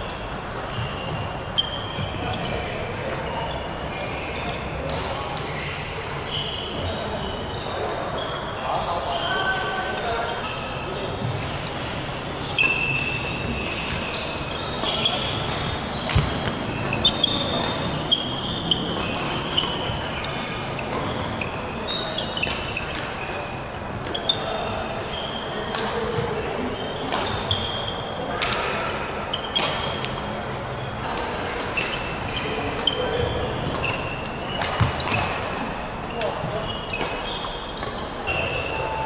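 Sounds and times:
shoes squeaking on wooden floor: 0.0 - 30.2, 31.0 - 39.0
rackets striking shuttlecock: 12.6 - 21.3, 25.7 - 26.3, 27.0 - 30.2, 32.6 - 38.5.

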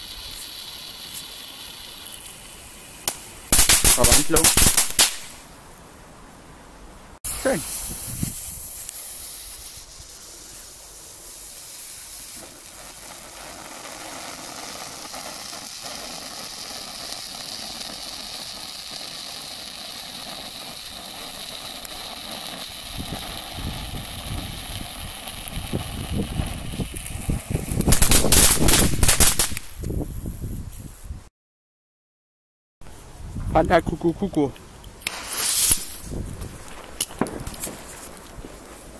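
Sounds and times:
firework fountain hissing: 0.0 - 5.7, 7.2 - 30.0, 34.9 - 38.9
firework crackling: 0.0 - 5.8, 7.2 - 30.1, 34.9 - 38.9.

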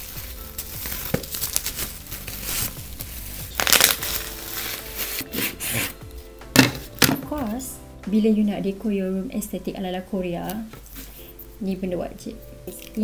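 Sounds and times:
bubble wrap crinkling: 0.0 - 7.6.

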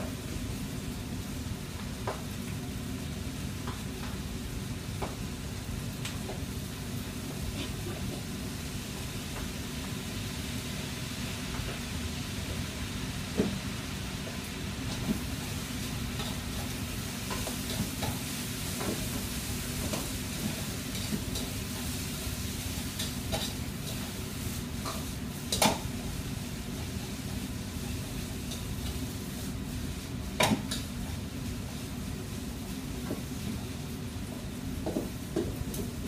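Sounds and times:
food sizzling in woks: 0.1 - 36.0
utensils clanking against pans: 22.8 - 24.2.

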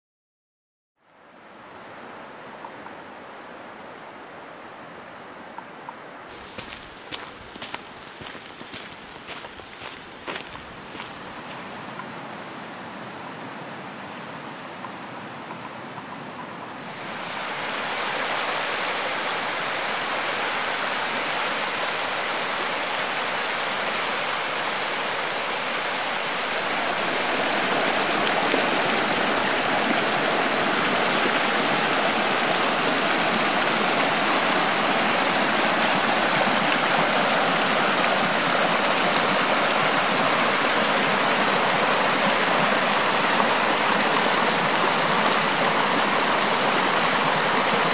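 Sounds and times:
water splashing over rocks: 17.2 - 47.9.

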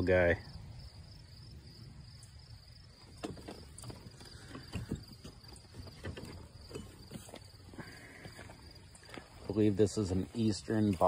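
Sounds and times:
high insect chirring: 0.0 - 11.0
footsteps on gravel: 6.9 - 11.0.

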